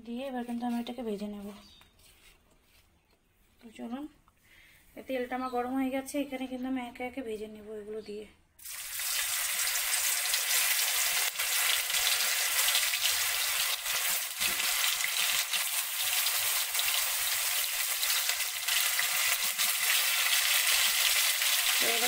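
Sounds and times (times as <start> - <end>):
cheese cubes sizzling in oil: 8.6 - 22.0
sharp crackles of frying: 8.6 - 22.0.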